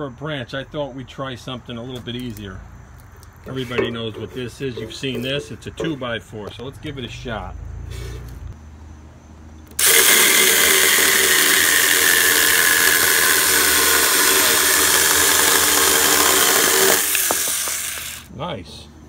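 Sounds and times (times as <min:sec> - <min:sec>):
chainsaw cutting wood: 0:09.7 - 0:18.3.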